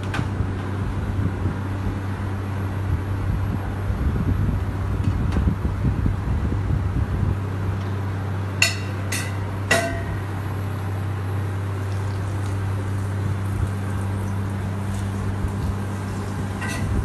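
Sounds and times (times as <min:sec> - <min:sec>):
steady low hum: 0:00.0 - 0:17.0
utensil clinking against cookware: 0:08.6 - 0:10.2, 0:16.6 - 0:17.0.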